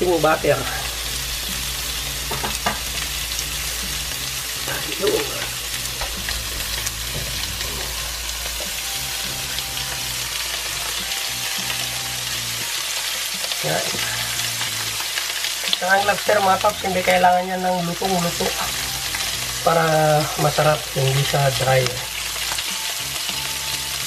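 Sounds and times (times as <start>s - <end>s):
lobster frying in butter: 0.0s - 24.0s.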